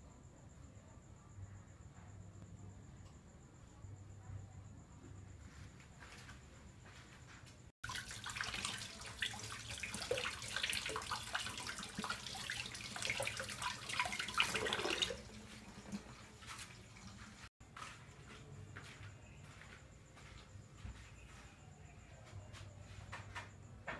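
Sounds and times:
tap water splashing: 0:07.8 - 0:17.4.

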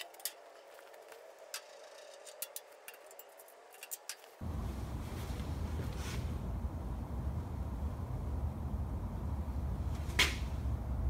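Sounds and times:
low rumble: 0:04.4 - 0:10.0.

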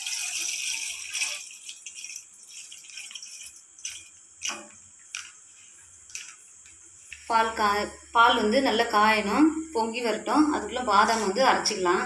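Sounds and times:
milk pouring into a steel pan: 0:00.0 - 0:04.5
drips and small splashes: 0:00.0 - 0:05.3.

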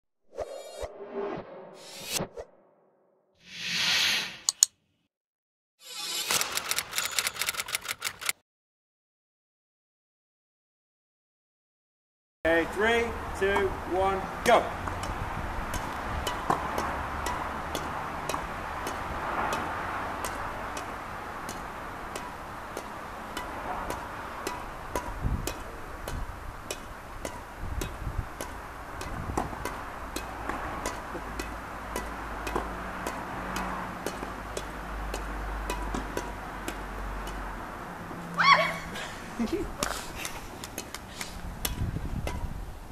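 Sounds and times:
rackets striking shuttlecock: 0:14.4 - 0:37.6, 0:41.6 - 0:42.5.

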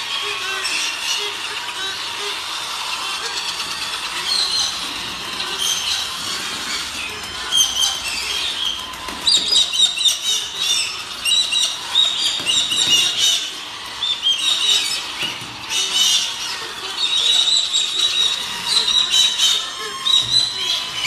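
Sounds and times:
cockatoos calling: 0:00.0 - 0:21.0.

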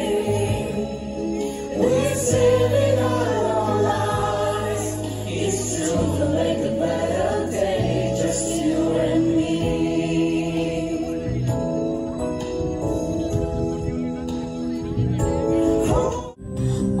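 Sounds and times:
group singing through speakers: 0:00.0 - 0:11.5
low bass line: 0:00.0 - 0:17.0.

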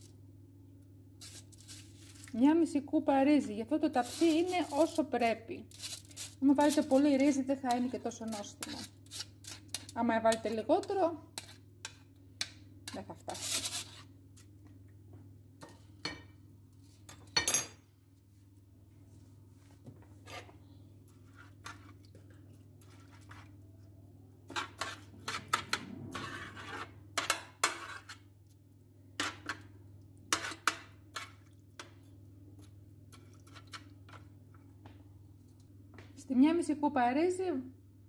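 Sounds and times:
metal spoon scraping oven tray: 0:05.7 - 0:11.6, 0:24.5 - 0:28.2, 0:30.3 - 0:31.4
low hum: 0:25.1 - 0:27.1.

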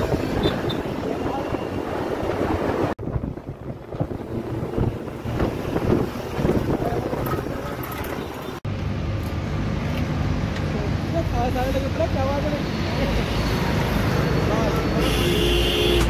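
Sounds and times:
wind buffeting microphone: 0:00.0 - 0:08.4
vehicle rumble and road noise: 0:00.0 - 0:16.0.

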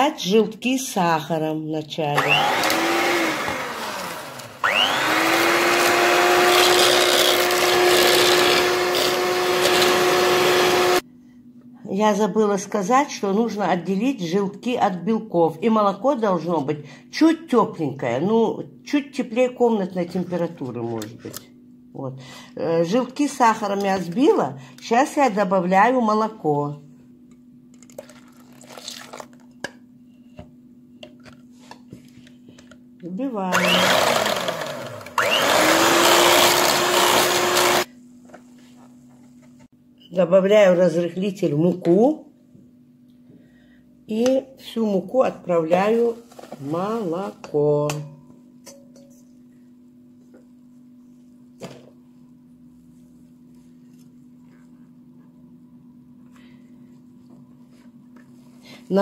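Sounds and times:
electric hand mixer whining: 0:02.2 - 0:11.0, 0:33.5 - 0:37.9
milk pouring into bowl: 0:27.8 - 0:29.4.

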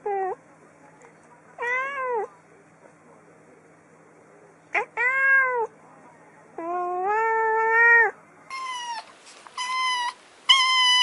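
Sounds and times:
cat meowing: 0:01.6 - 0:02.3, 0:04.7 - 0:05.7, 0:06.6 - 0:11.0
kitten mewing: 0:06.6 - 0:11.0.

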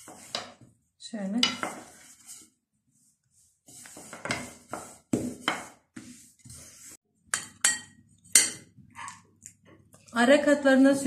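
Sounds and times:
rolling pin rubbing over dough: 0:00.0 - 0:00.7, 0:01.6 - 0:07.0.

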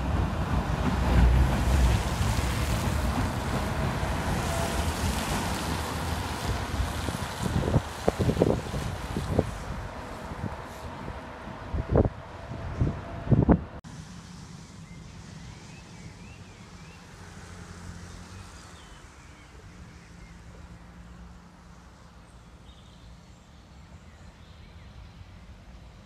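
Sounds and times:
wind buffeting microphone: 0:00.0 - 0:13.8.

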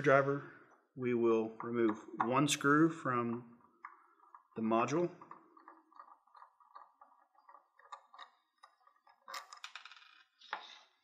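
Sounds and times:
screwdriver ticks and scrapes: 0:05.2 - 0:09.7.

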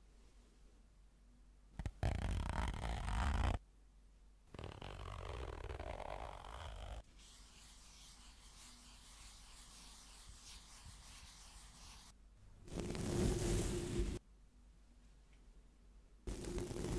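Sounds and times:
scratchy rubbing at microphone: 0:04.5 - 0:14.2, 0:16.3 - 0:16.9.

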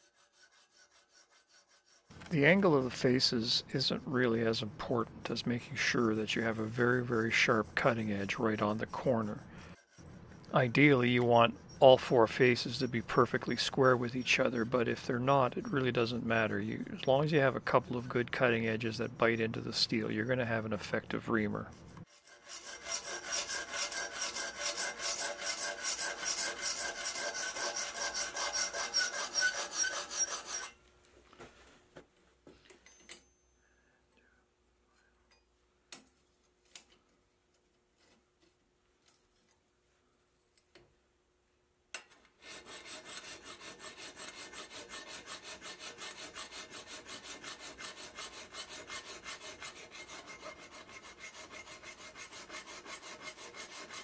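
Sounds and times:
hand file rasping on steel: 0:00.0 - 0:02.3, 0:05.7 - 0:20.8, 0:21.4 - 0:30.8, 0:42.4 - 0:54.0.

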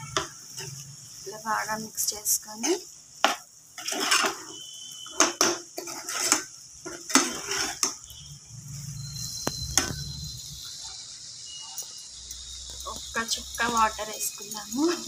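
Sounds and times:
spoon scraping and knocking a pan: 0:00.0 - 0:00.9, 0:02.5 - 0:08.3, 0:09.4 - 0:10.1.

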